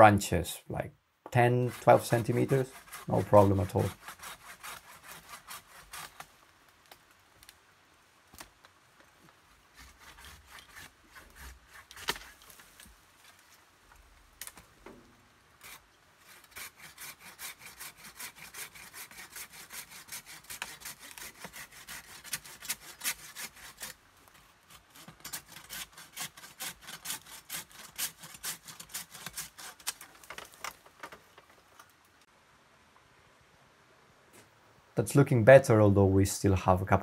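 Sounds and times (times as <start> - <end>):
pruning saw rasping through wood: 1.3 - 6.3, 9.7 - 12.6, 15.6 - 24.0, 24.7 - 30.1.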